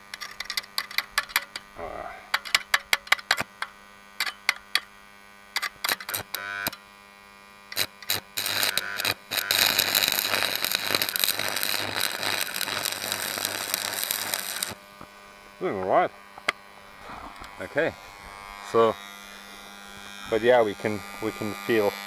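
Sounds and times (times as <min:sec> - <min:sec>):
welder mains buzz: 0:00.0 - 0:22.0
welding arc crackling hiss: 0:05.5 - 0:06.8, 0:07.6 - 0:22.0
electrode scratching crackles: 0:07.8 - 0:14.8.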